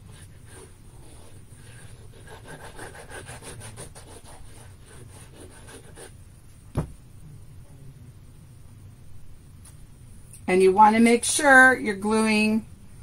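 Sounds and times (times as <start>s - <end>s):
sharp knock: 6.7s - 7.0s.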